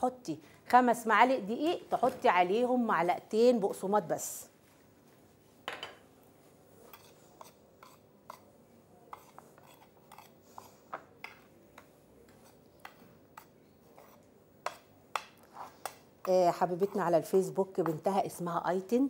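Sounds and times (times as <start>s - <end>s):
metal utensil scraping a plate: 9.1s - 10.8s.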